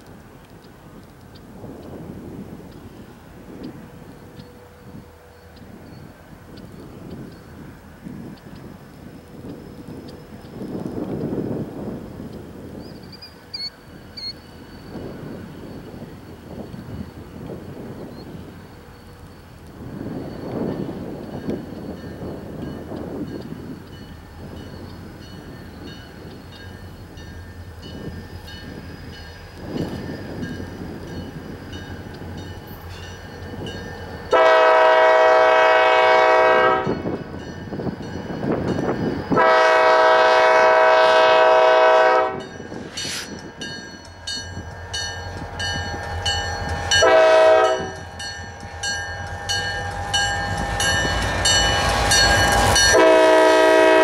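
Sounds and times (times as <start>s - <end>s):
locomotive engine rumble: 0.0s - 54.0s
locomotive horn blasts: 34.3s - 37.2s, 39.3s - 42.5s, 46.9s - 48.2s, 52.6s - 54.0s.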